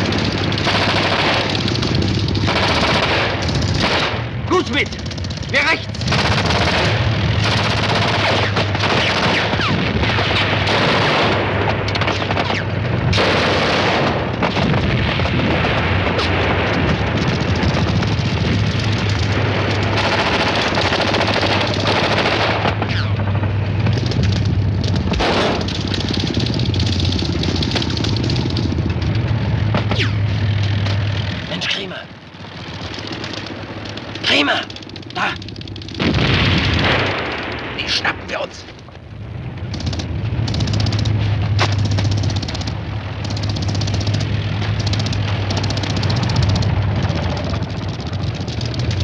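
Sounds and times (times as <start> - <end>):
rifle shots: 0.0 - 4.4, 5.9 - 18.3, 18.9 - 23.4, 25.0 - 27.3
loud blasts: 0.0 - 28.8, 32.2 - 48.4
machine gun firing: 0.0 - 28.9, 32.4 - 38.0, 39.6 - 49.0
low rumble: 0.0 - 49.0.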